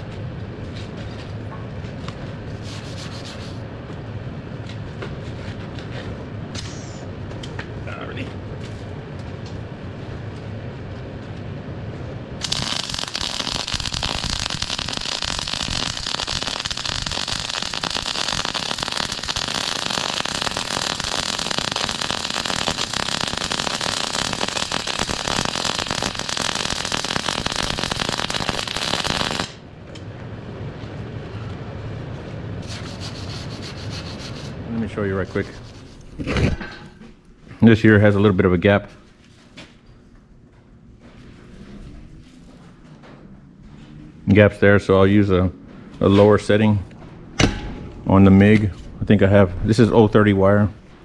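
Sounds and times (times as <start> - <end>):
welder arc crackling: 12.4 - 29.6.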